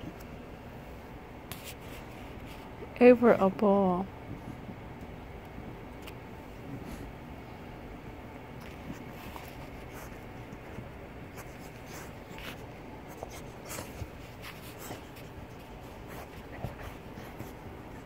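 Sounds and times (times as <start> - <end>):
scratching and rustling: 8.4 - 18.0.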